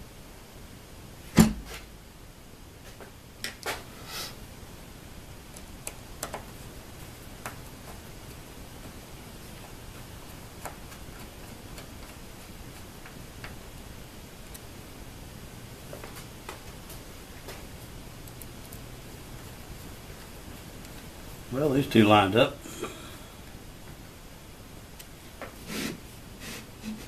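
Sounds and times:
faint steady low hum: 0.0s - 27.0s.

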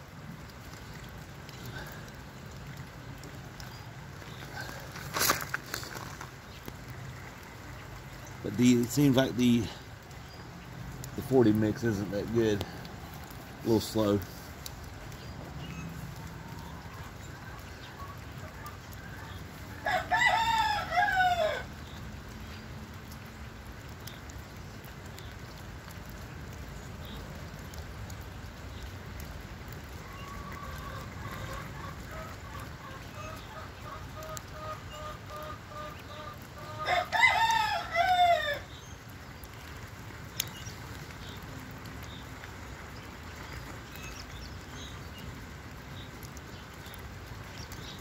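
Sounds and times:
rooster crowing: 19.2s - 21.7s, 36.8s - 38.7s.

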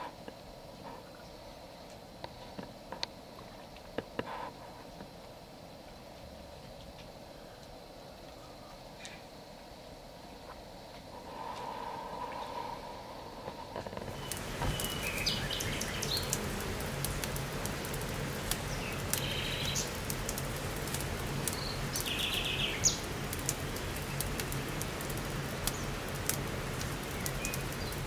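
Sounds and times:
campfire crackling and popping: 13.4s - 28.0s
birds chirping: 14.1s - 26.1s, 27.0s - 28.0s.

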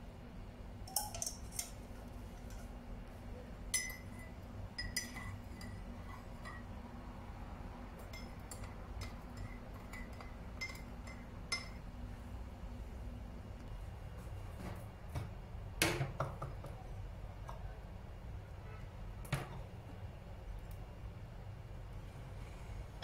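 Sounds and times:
spoon clinking on cup: 0.9s - 1.8s, 3.7s - 6.7s, 8.0s - 11.8s
spoon stirring tea: 0.9s - 2.7s, 3.7s - 6.8s, 8.0s - 11.8s.

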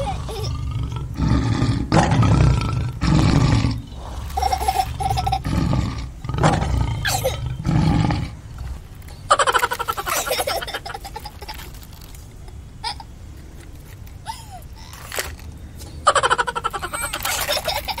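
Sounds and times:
lion roaring and growling: 0.0s - 8.9s.

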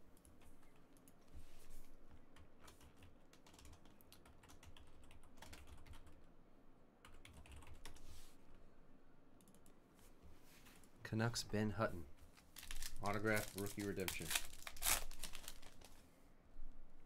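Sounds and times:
faint keyboard typing: 0.1s - 6.3s, 7.0s - 8.2s, 9.4s - 10.1s, 12.5s - 16.0s.

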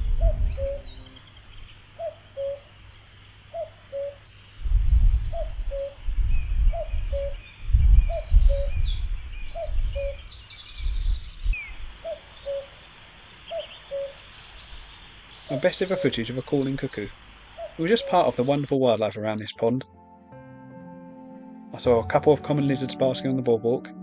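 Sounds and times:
low rumble: 0.0s - 1.2s, 4.6s - 10.0s
cuckoo calling: 0.0s - 2.7s, 3.5s - 4.3s, 5.2s - 10.5s, 11.2s - 12.8s, 13.4s - 19.5s
small birds twittering: 0.0s - 19.6s.

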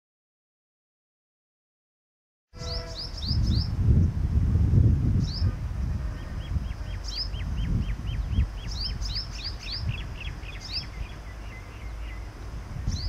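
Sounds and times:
high falling bird chirps: 2.6s - 3.8s, 6.2s - 13.0s
lower bird calls: 2.6s - 4.1s, 5.2s - 13.0s.

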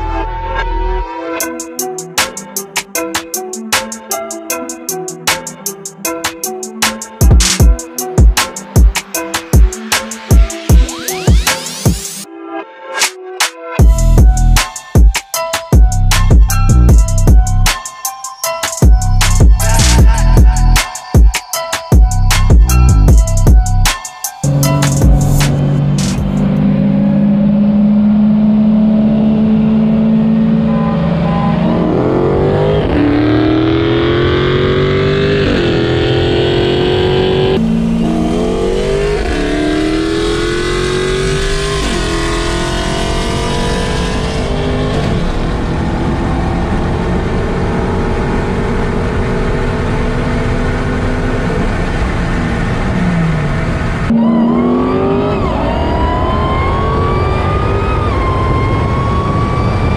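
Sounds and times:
car engines accelerating through gears: 24.5s - 59.9s.

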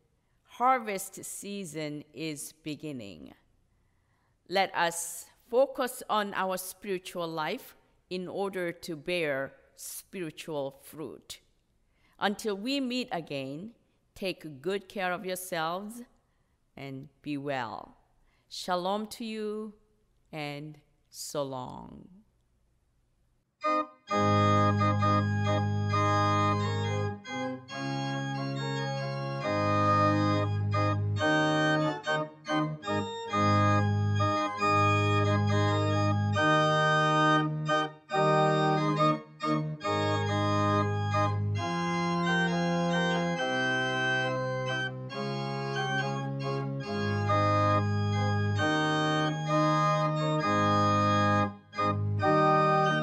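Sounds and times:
electronic organ chords: 23.6s - 53.0s.

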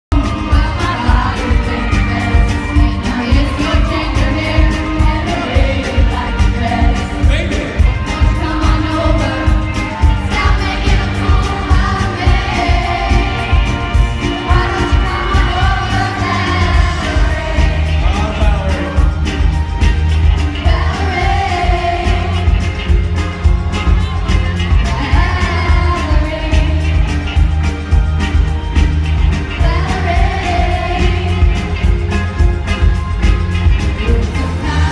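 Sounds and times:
backing track with steady beat: 0.1s - 34.9s
women singing karaoke: 0.2s - 7.2s, 7.9s - 18.0s, 20.6s - 22.7s, 24.8s - 27.1s, 29.5s - 31.9s, 34.0s - 34.9s.

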